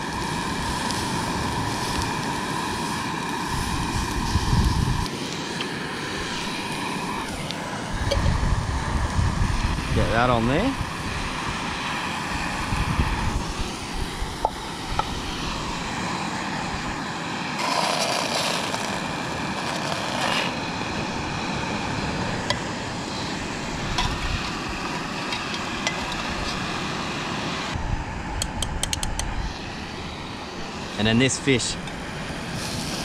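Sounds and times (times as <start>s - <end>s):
fish sizzling in a pan: 0.0s - 8.4s, 17.6s - 20.8s
wind buffeting microphone: 3.4s - 5.1s, 6.2s - 17.0s, 20.7s - 26.7s, 27.7s - 30.8s.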